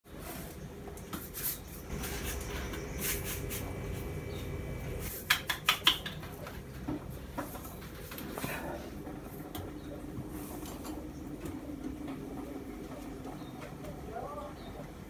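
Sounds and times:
steady low hum: 1.6s - 5.2s.

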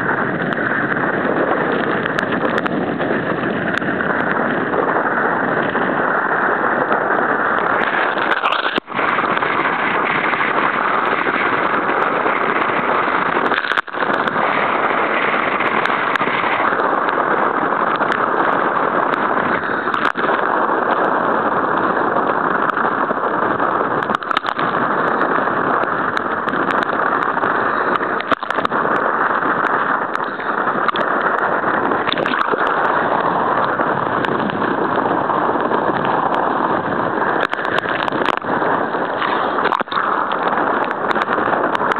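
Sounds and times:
breaking surf: 0.0s - 41.9s
wind buffeting microphone: 0.0s - 41.9s.

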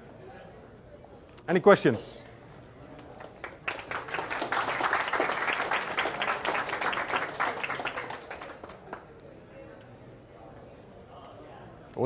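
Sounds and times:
audience applauding: 3.0s - 9.1s.

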